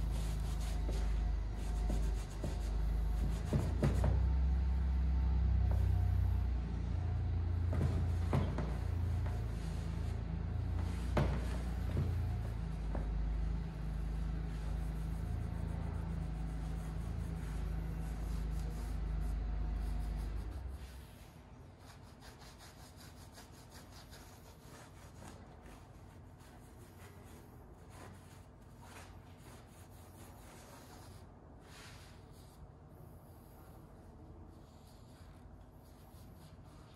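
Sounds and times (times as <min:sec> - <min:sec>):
low machine hum: 0:00.0 - 0:36.9
cloth rag rubbing on metal: 0:07.8 - 0:32.6.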